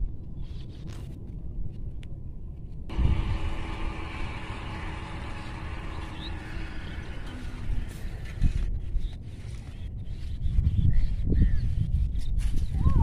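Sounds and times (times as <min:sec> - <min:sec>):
faint low hum: 0:00.0 - 0:09.9
wind buffeting microphone: 0:00.0 - 0:13.0.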